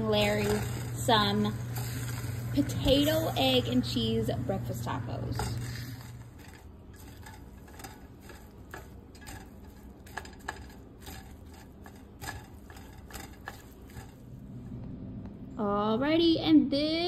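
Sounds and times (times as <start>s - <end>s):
metal spatula scraping skillet: 0.0s - 14.3s.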